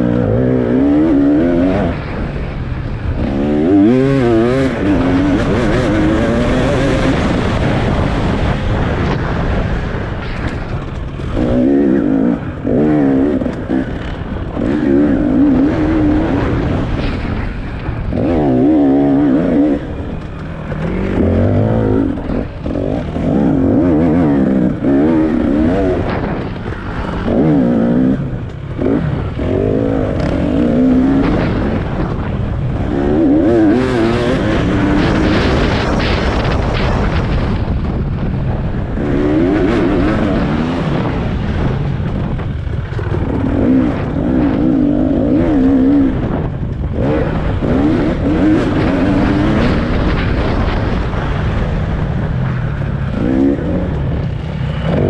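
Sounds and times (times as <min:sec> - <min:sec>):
racing engine revving: 0:03.0 - 0:09.6, 0:10.5 - 0:37.4, 0:42.5 - 0:51.2.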